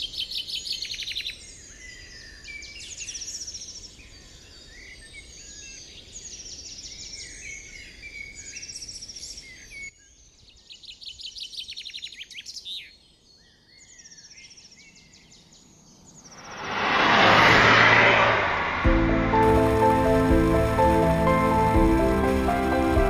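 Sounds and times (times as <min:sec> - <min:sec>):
car approaching: 0:16.2 - 0:23.0.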